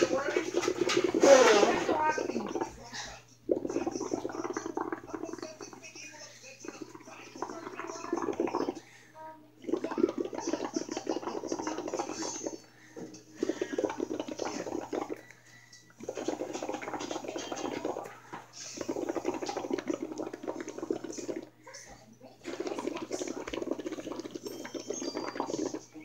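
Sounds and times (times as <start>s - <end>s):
bubbling through a straw in water: 0.0s - 21.6s, 22.4s - 26.0s.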